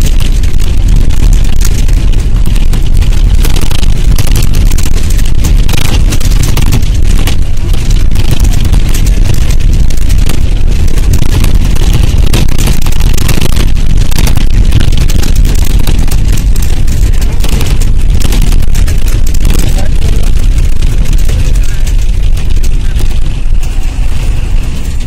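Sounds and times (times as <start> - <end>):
bus cabin rumble: 0.0 - 25.0.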